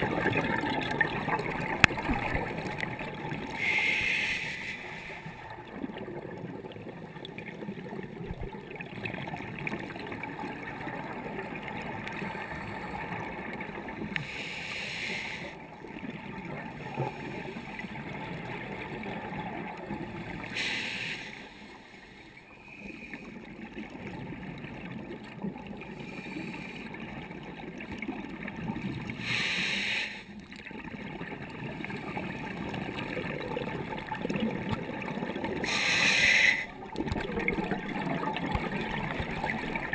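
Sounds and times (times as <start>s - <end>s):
exhaled bubbles rushing: 0.0s - 3.8s, 30.6s - 39.9s
muffled underwater hiss: 0.1s - 6.5s, 13.9s - 15.7s, 16.5s - 23.7s, 25.8s - 27.2s, 29.0s - 30.4s, 35.1s - 39.9s.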